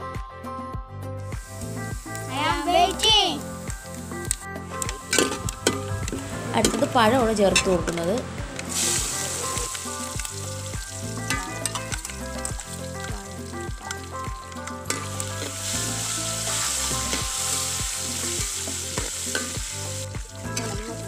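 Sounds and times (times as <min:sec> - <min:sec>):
banana pieces sizzling in oil: 0:01.4 - 0:21.0
ladle scraping and clinking on pot: 0:05.1 - 0:05.9.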